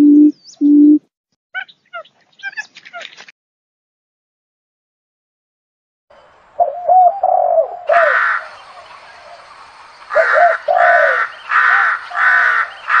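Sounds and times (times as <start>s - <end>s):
crow cawing: 7.9s - 8.6s, 10.1s - 13.0s.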